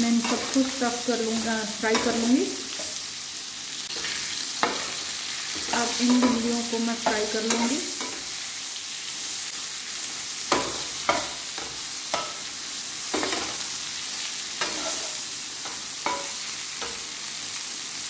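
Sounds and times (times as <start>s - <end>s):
okra sizzling in oil: 0.0s - 18.0s
spatula scraping a frying pan: 0.1s - 0.7s, 14.3s - 17.1s.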